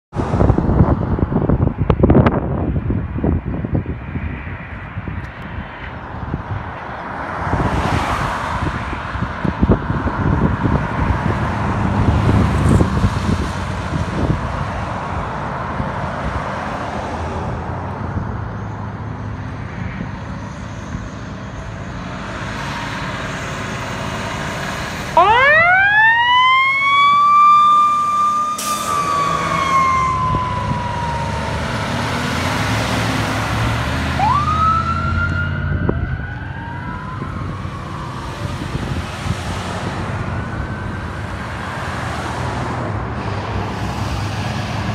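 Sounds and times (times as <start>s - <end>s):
heavy engines rumbling: 0.1s - 44.9s
siren wailing: 22.5s - 33.3s, 34.0s - 41.9s.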